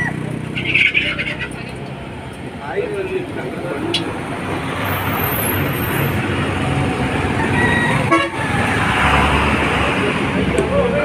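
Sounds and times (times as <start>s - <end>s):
road traffic: 0.0s - 11.0s
vehicle horn tooting: 7.9s - 8.5s.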